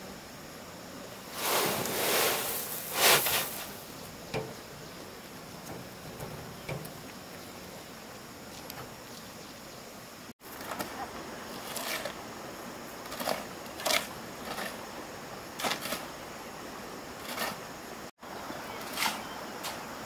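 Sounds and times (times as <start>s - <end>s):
steady background hiss: 0.0s - 20.0s
short sharp scrapes: 1.3s - 3.8s.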